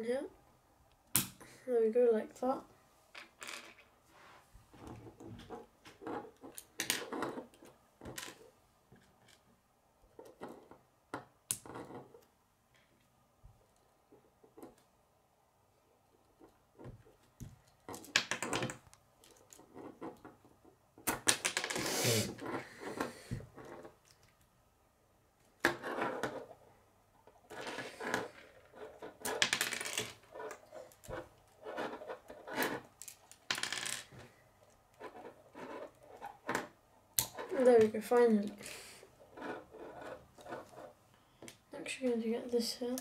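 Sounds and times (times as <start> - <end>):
plastic pieces clicking and rattling: 17.3 - 20.4, 21.0 - 21.8, 27.5 - 37.6.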